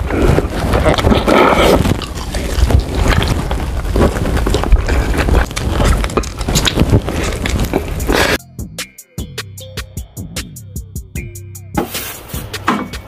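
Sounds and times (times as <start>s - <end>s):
chewing crunchy chicken: 0.1s - 8.4s.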